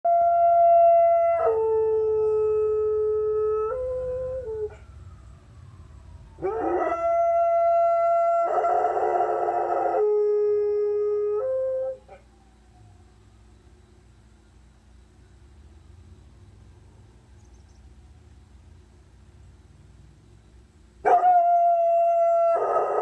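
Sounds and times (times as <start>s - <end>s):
emergency vehicle sirens: 0.1s - 13.6s.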